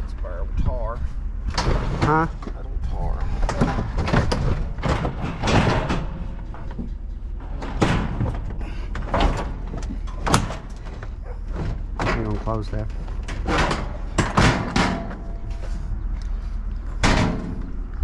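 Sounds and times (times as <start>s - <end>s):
tailgate metal clunks and scrapes: 1.5s - 2.3s, 3.3s - 15.9s, 16.9s - 17.8s.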